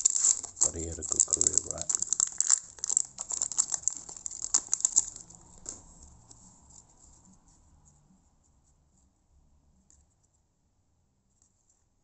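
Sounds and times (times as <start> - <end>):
wrapper crinkling being torn open: 0.0 - 6.0.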